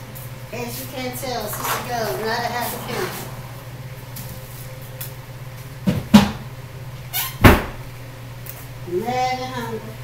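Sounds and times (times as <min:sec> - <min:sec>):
steady low hum: 0:00.8 - 0:07.1.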